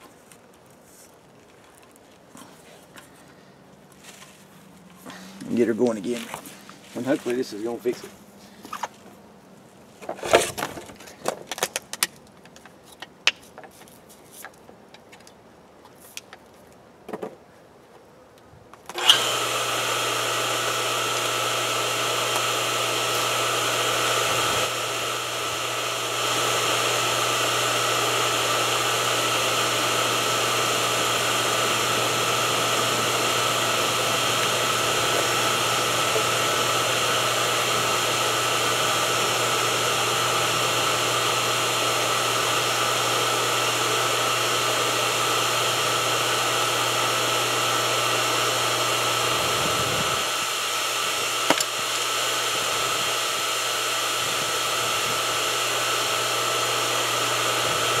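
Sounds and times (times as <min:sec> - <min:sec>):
water pump motor humming: 0:19.0 - 0:58.0.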